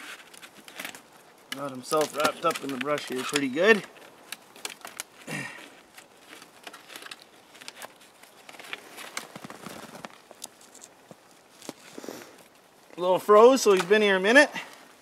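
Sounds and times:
twigs rustling and snapping: 0.0 - 14.9
snow crunching underfoot: 7.4 - 12.4.

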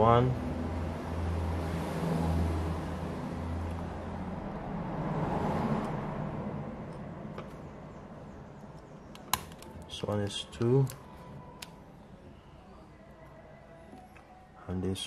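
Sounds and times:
passing vehicle rumble and hiss: 0.0 - 8.7.

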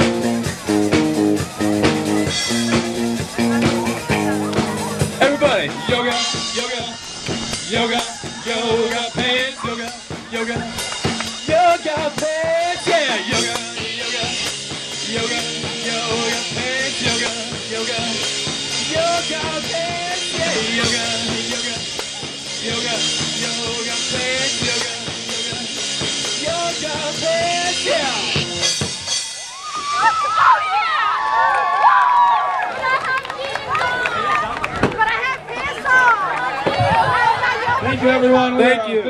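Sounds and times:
electric guitar lead: 0.0 - 7.7
bass guitar: 0.0 - 30.2
drum kit: 0.0 - 30.2.

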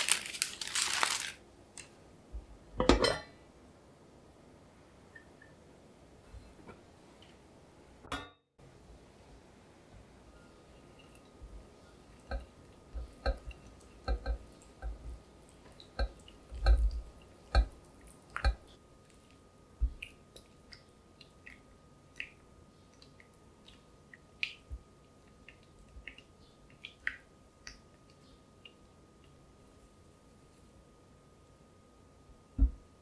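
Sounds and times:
spatula tapping glass bowl: 12.3 - 15.0, 16.0 - 17.8.

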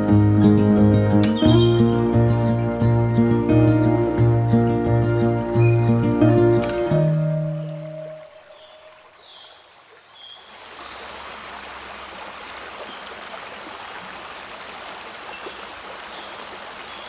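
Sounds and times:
stream running over stones: 5.2 - 17.0.

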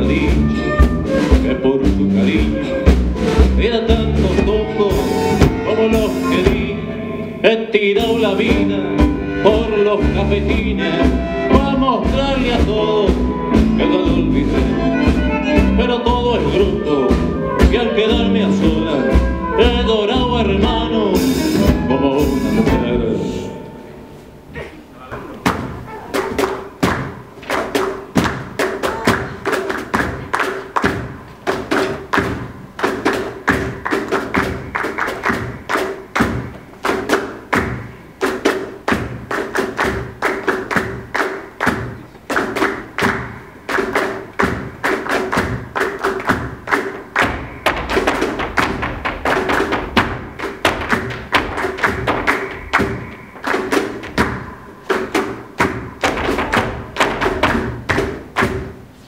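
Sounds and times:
flamenco band music: 0.0 - 59.0
heel stamps on wooden stage: 25.4 - 58.9.

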